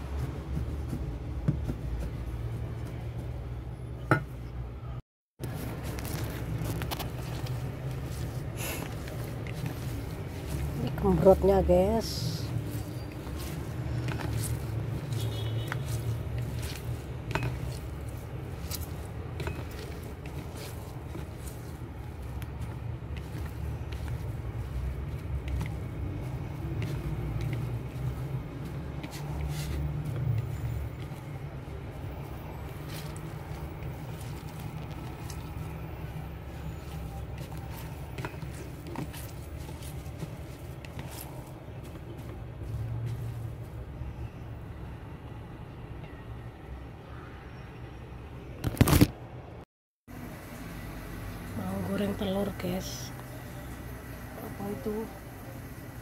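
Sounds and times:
hands mixing food in plastic bowl: 5.4s - 43.8s.

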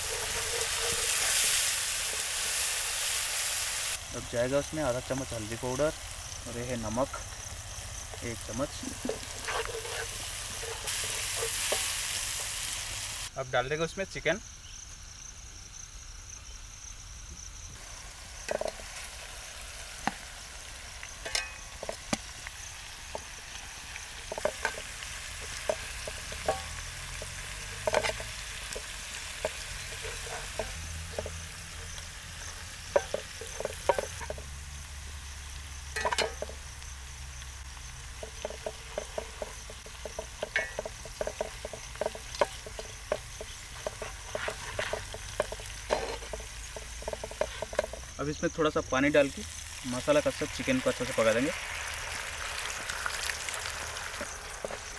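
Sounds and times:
tongs and spatula scraping pan: 0.0s - 3.1s, 8.1s - 12.0s, 24.1s - 34.5s, 35.9s - 36.6s, 38.1s - 48.1s
chicken sizzling in a skillet: 0.0s - 13.4s, 17.8s - 54.9s.

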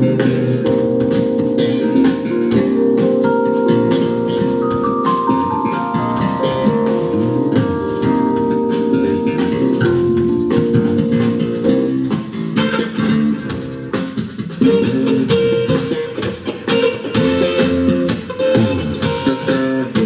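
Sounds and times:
bass guitar: 0.0s - 20.0s
drum kit: 0.0s - 20.0s
electric guitar lines: 0.0s - 20.0s.

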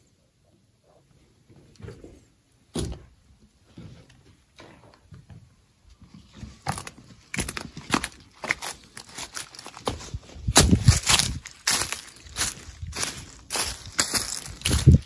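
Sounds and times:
footsteps on debris: 6.1s - 15.0s.

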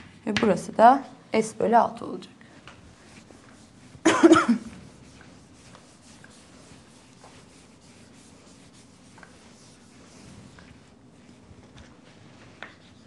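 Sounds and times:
chalk scratching on blackboard: 3.0s - 13.0s.

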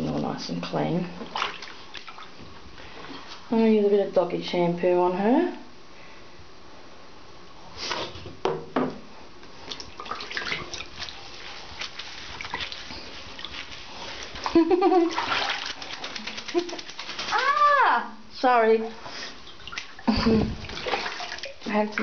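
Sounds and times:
water splashing in a bathtub: 0.0s - 3.9s, 9.6s - 22.0s
water dripping: 18.8s - 22.0s.

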